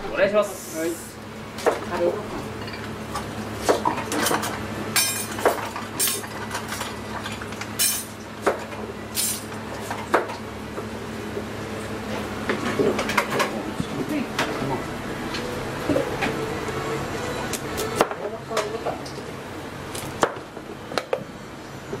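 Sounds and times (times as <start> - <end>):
steady low hum: 0.0 - 22.0
bowls and dishes clinking: 2.4 - 10.4.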